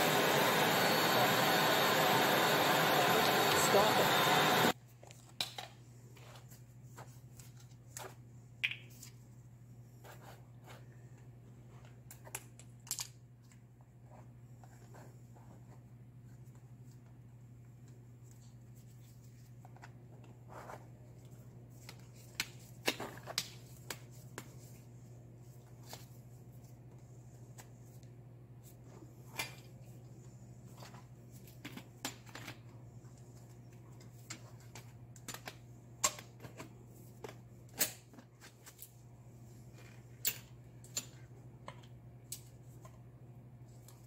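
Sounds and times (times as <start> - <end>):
steady low hum: 0.0 - 4.8.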